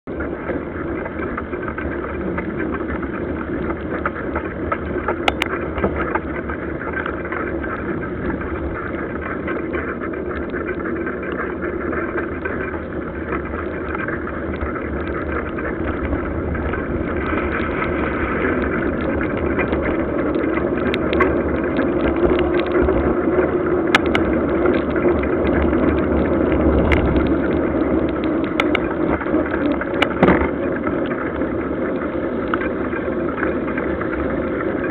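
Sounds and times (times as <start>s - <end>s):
bicycle tyres rolling on wet asphalt: 0.0s - 34.9s
wind noise: 0.1s - 34.9s
sharp knocks from bike: 30.0s - 30.5s.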